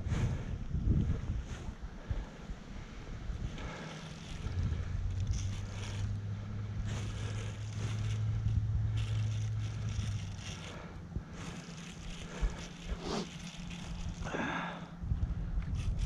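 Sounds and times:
steady low hum: 0:00.0 - 0:16.0
rustling: 0:03.5 - 0:14.6.

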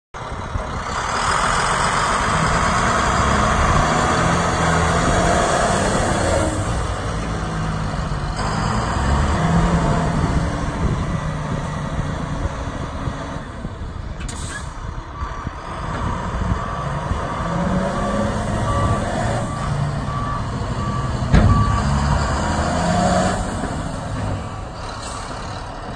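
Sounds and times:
diesel truck engine running hard: 0:00.2 - 0:25.9
reversing alarm beeping: 0:17.7 - 0:22.8.

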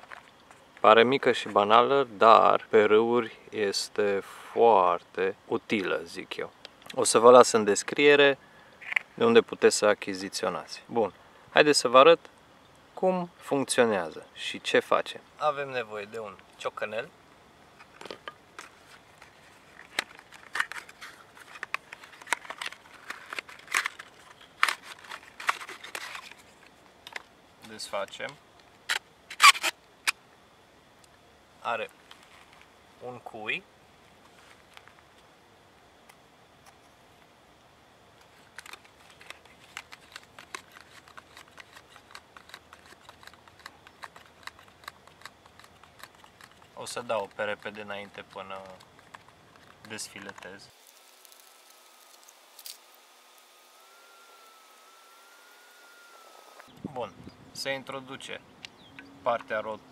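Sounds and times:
plastic packaging clicks and crackles: 0:18.0 - 0:29.0, 0:38.2 - 0:53.0
cardboard crinkling and tearing: 0:18.6 - 0:26.6, 0:38.3 - 0:53.8.

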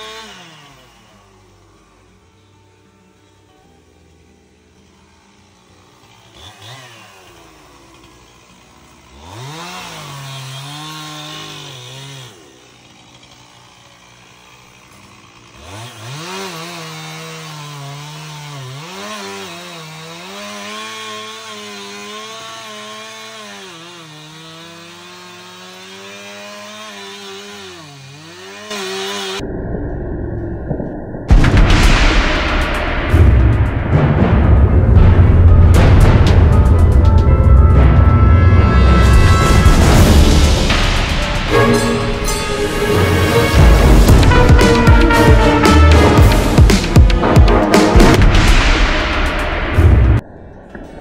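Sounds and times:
chainsaw revving: 0:00.0 - 0:02.2, 0:04.9 - 0:29.4, 0:40.2 - 0:49.2
chainsaw cutting wood: 0:00.0 - 0:02.5, 0:04.4 - 0:29.4, 0:39.1 - 0:49.6.

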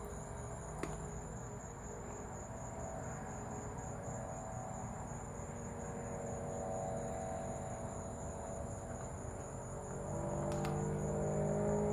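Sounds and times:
high-pitched insect chorus: 0:00.0 - 0:11.9.

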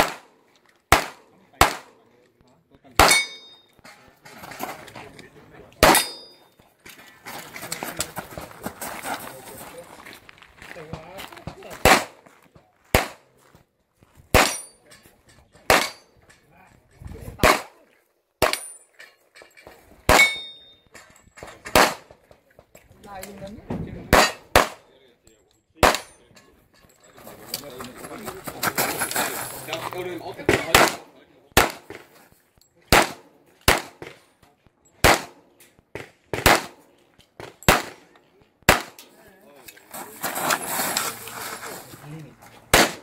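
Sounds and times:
handgun shots: 0:00.0 - 0:00.3, 0:00.9 - 0:01.9, 0:03.0 - 0:03.5, 0:05.8 - 0:06.3, 0:11.8 - 0:12.2, 0:12.9 - 0:13.2, 0:14.3 - 0:14.7, 0:15.7 - 0:16.0, 0:17.4 - 0:17.8, 0:20.1 - 0:20.5, 0:21.7 - 0:22.2, 0:24.1 - 0:24.8, 0:25.8 - 0:26.1, 0:30.7 - 0:31.0, 0:31.6 - 0:32.0, 0:32.9 - 0:34.2, 0:35.0 - 0:35.4, 0:36.3 - 0:36.8, 0:37.6 - 0:38.0, 0:38.7 - 0:39.0, 0:42.7 - 0:43.0
high metallic ring: 0:03.1 - 0:03.8, 0:05.9 - 0:06.6.

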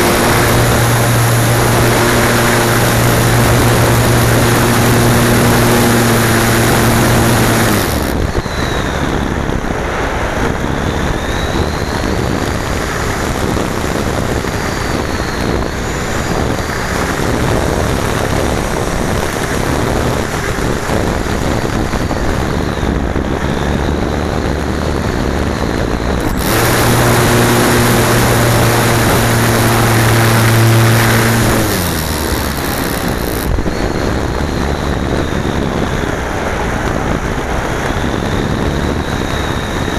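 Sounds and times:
low steady buzz: 0:00.0 - 0:08.4, 0:26.1 - 0:33.6
airflow rushing: 0:00.0 - 0:08.6, 0:26.0 - 0:34.6.

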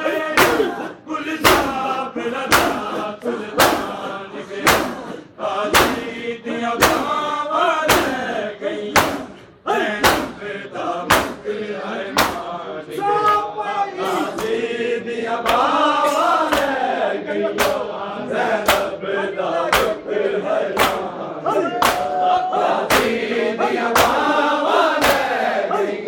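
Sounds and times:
men chanting in unison: 0:00.0 - 0:26.0
chest-beating slaps: 0:00.4 - 0:01.9, 0:02.5 - 0:06.2, 0:06.8 - 0:07.2, 0:07.8 - 0:08.3, 0:08.9 - 0:12.6, 0:13.3 - 0:14.6, 0:15.4 - 0:16.9, 0:17.5 - 0:18.0, 0:18.6 - 0:19.0, 0:19.6 - 0:20.1, 0:20.7 - 0:24.3, 0:24.9 - 0:25.4.

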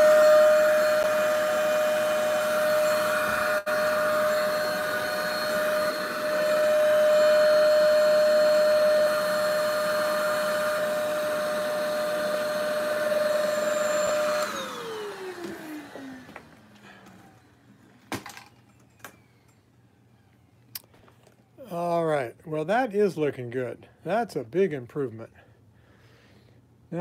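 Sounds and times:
motor spinning down: 0:00.0 - 0:17.6
vacuum cleaner whining: 0:00.0 - 0:21.9.

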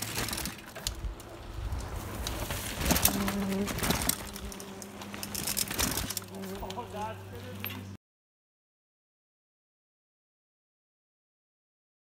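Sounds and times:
clicks and knocks from bikes: 0:00.0 - 0:06.8
mountain bikes riding over rock: 0:00.0 - 0:07.9.

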